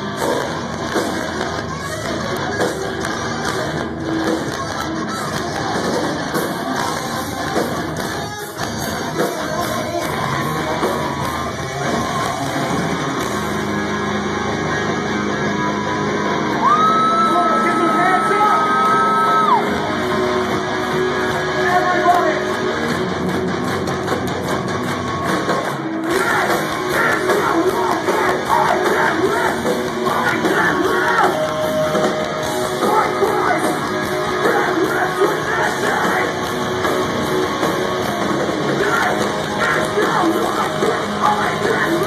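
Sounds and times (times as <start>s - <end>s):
vocals: 0.0s - 12.2s, 16.6s - 19.7s, 26.0s - 36.7s, 38.2s - 42.0s
distorted electric guitars: 0.0s - 42.0s
drums: 0.0s - 42.0s.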